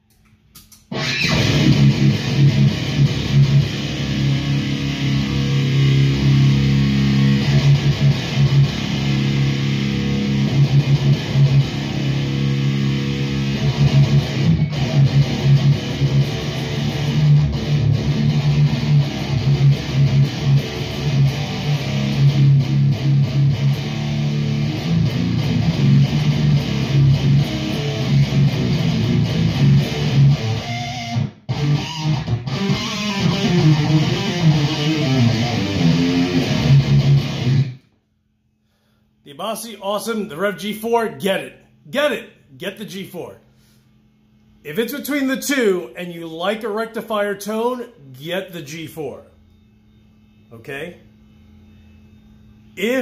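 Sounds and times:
distorted electric guitar riffing: 0.9s - 37.9s.

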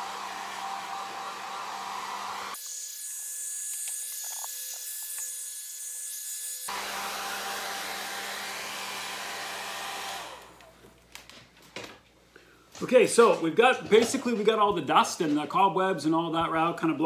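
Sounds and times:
hair dryer blowing: 0.0s - 2.6s, 6.7s - 10.8s.

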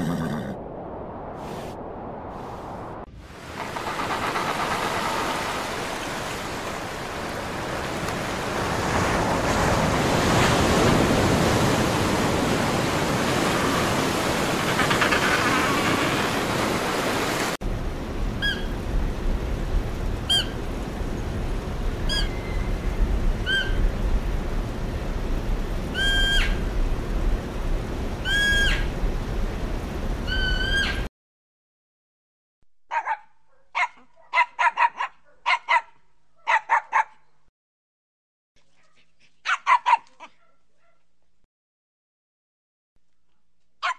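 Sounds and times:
surf rushing: 0.1s - 17.6s.

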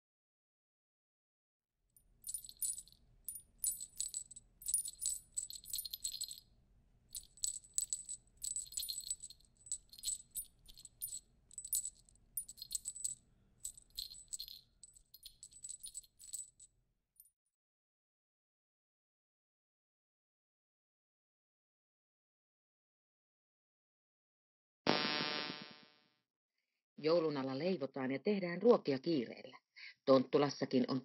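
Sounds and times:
jingle bells shaken: 2.2s - 6.4s, 7.1s - 16.7s.

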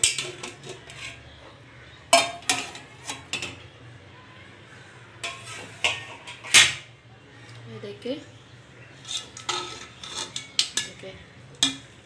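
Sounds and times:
metal lid clanking on pot: 0.0s - 1.2s, 2.1s - 3.6s, 5.2s - 6.9s, 9.1s - 11.0s, 11.6s - 12.0s
spoon knocking against metal: 11.6s - 11.9s.

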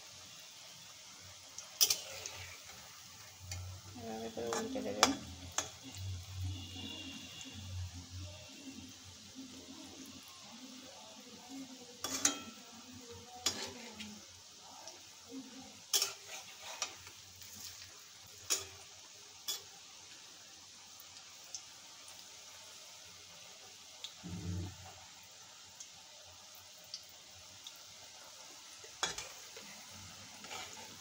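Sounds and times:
oil sizzling: 0.0s - 31.0s
metal spatula scraping pan: 1.8s - 2.9s, 12.0s - 12.7s, 13.4s - 14.2s, 15.9s - 17.8s, 29.0s - 31.0s.

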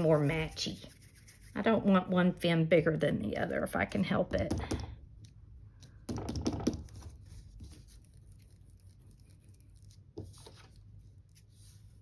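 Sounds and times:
hands rubbing clay: 0.0s - 1.6s, 5.2s - 12.0s.

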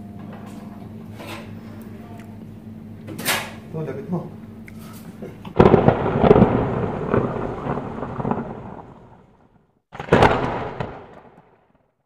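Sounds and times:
thunder-like crashes: 5.5s - 11.9s.

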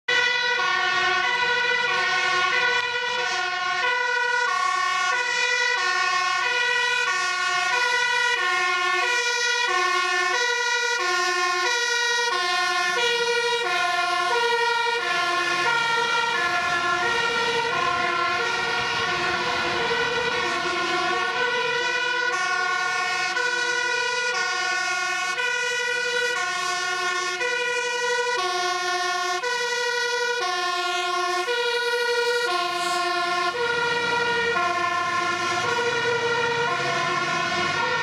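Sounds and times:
two-tone fire engine sirens: 0.0s - 38.0s.

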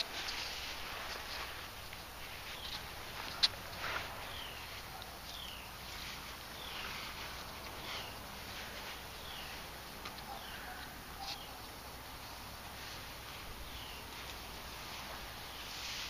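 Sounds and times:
bird calling: 0.0s - 11.8s, 13.6s - 14.4s
faint outdoor hiss: 0.0s - 16.0s.

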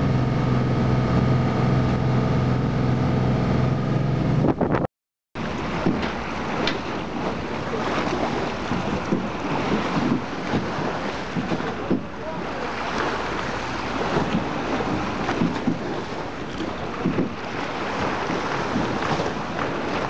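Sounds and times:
boat engine running: 0.0s - 20.0s
water lapping and splashing: 5.4s - 20.0s
wind buffeting microphone: 5.5s - 20.0s.

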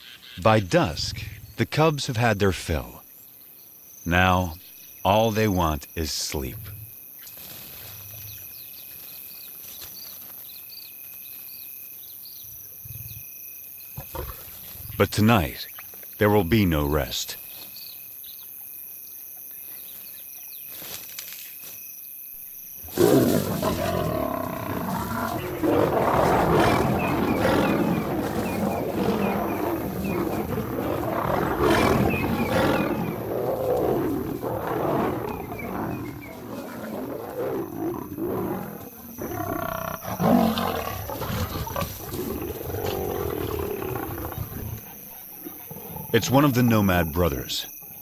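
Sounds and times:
crickets chirping: 0.0s - 48.0s
lions snarling and roaring: 14.0s - 15.6s, 22.8s - 46.6s.

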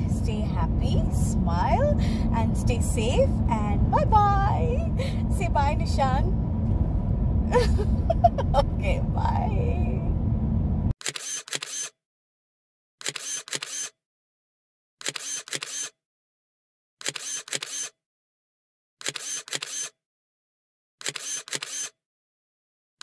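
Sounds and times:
camera shutter clicks: 11.0s - 12.0s, 13.0s - 14.0s, 15.0s - 16.0s, 17.0s - 18.0s, 19.0s - 19.9s, 21.0s - 22.0s.

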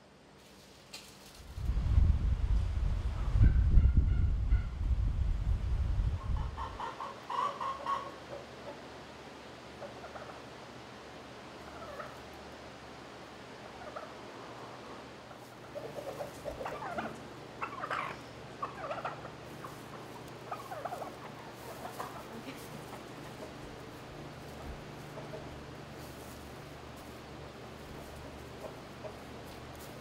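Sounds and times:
steady low hum: 1.4s - 30.0s
hens clucking: 6.1s - 30.0s.

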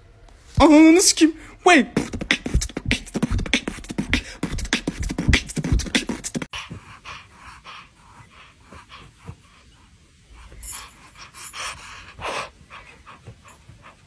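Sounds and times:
rapid sharp smacks and knocks: 2.0s - 6.8s
kitten breathy sounds: 2.1s - 13.5s.

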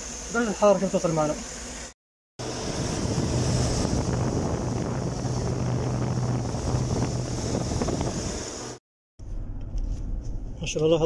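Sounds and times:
engine running with steady hum: 2.4s - 10.6s.

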